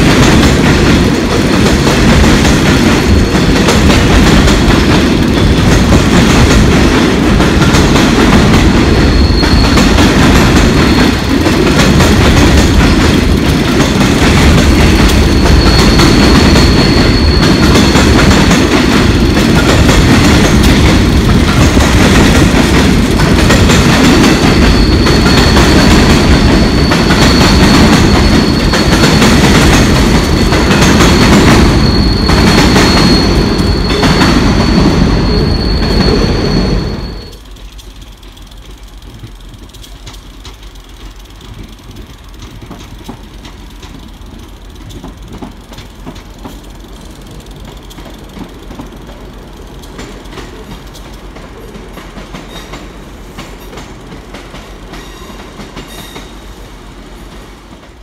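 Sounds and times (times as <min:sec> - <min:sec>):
train wheels rumbling on rails: 0:00.0 - 0:58.0
high wheel squeal: 0:08.8 - 0:11.4, 0:14.8 - 0:19.6, 0:24.3 - 0:37.5.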